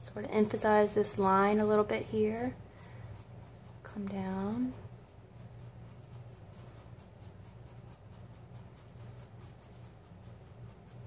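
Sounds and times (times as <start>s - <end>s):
faint low hum: 0.0s - 11.0s
pencil scratching on paper: 0.2s - 11.0s.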